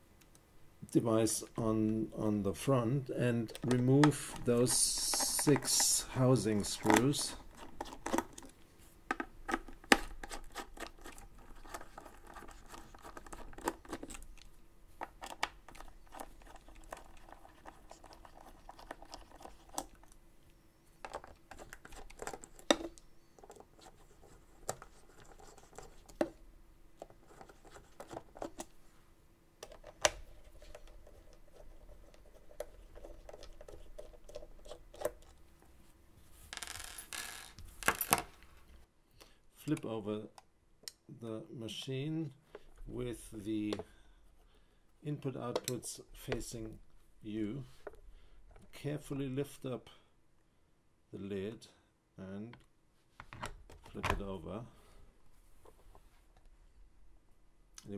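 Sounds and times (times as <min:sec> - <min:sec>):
small screws set down: 0:36.6 - 0:38.4.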